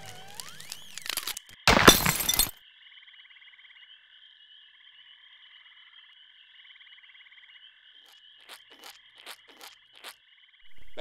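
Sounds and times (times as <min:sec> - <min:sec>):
frog chorus trilling: 0:02.6 - 0:11.0.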